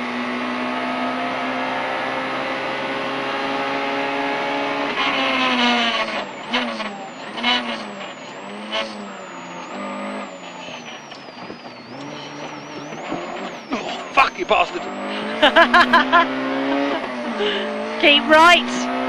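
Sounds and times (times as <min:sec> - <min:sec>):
car engine at high revs: 0:00.0 - 0:19.0
sharp bangs on gear shifts: 0:11.0 - 0:19.0.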